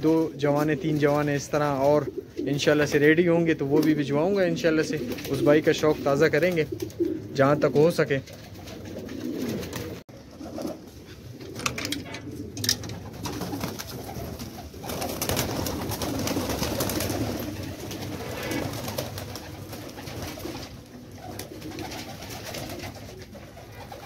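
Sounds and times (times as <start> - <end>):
pigeons cooing: 0.4 - 24.0
wings flapping: 4.7 - 7.2, 7.8 - 24.0.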